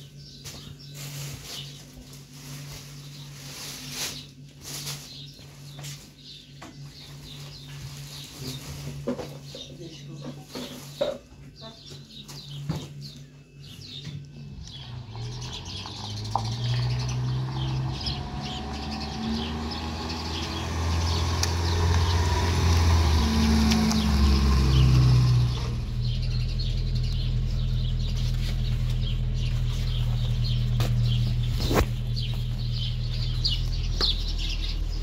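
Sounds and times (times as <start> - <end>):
small birds chirping: 0.0 - 35.0
truck engine running: 14.4 - 35.0.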